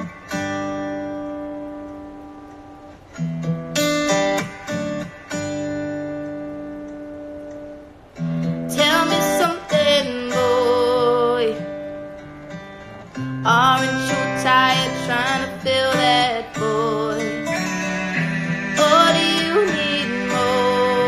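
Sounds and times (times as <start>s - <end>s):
acoustic guitar strumming: 0.0s - 21.0s
woman singing: 8.7s - 12.0s, 13.3s - 21.0s.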